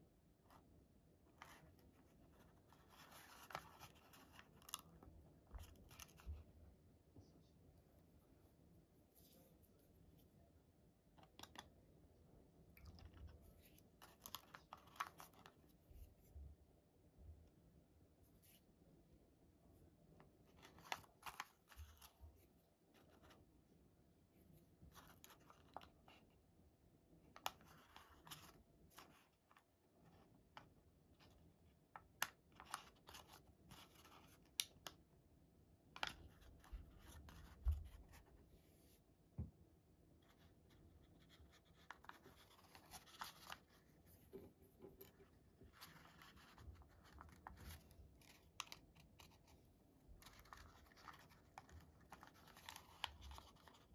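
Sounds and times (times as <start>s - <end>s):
paper rustling and crinkling: 1.4s - 6.4s, 12.8s - 15.6s, 20.5s - 22.4s, 41.2s - 44.4s, 45.0s - 53.9s.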